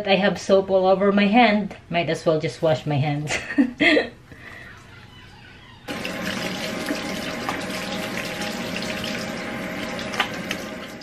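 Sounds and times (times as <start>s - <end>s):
faucet turning on: 5.9s - 11.0s
hands rinsing under water: 5.9s - 11.0s
water running into a steel sink: 5.9s - 11.0s.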